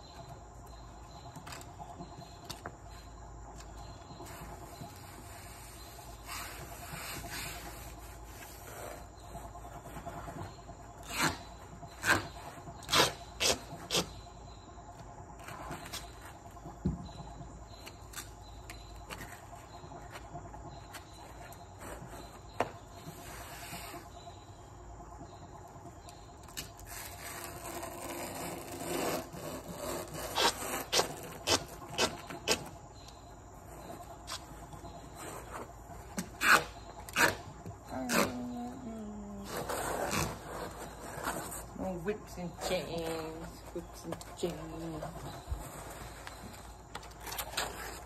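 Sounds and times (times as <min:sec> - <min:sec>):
rubbing and scraping foam: 0:03.8 - 0:14.3, 0:20.8 - 0:24.2, 0:26.5 - 0:38.4, 0:39.4 - 0:42.1, 0:42.7 - 0:48.0.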